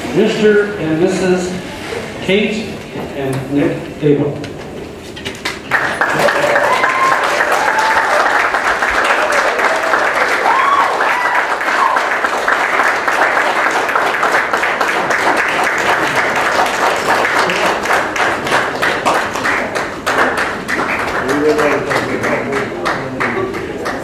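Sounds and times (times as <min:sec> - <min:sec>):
crowd applauding: 0:05.5 - 0:24.0.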